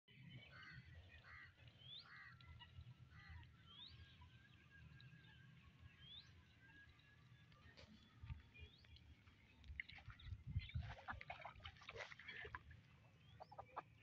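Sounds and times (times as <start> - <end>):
ducks quacking: 13.3 - 14.0.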